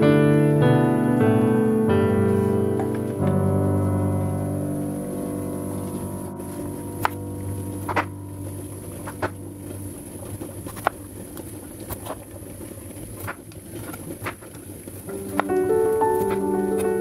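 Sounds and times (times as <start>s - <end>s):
soft background music: 0.0s - 10.8s, 15.1s - 17.0s.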